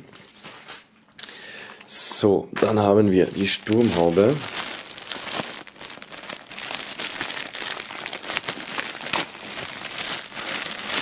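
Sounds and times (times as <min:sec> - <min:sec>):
plastic film crinkling: 0:02.6 - 0:11.0.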